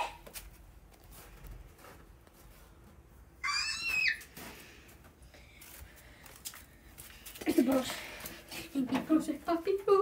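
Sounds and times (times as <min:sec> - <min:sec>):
child squealing: 0:03.4 - 0:04.3.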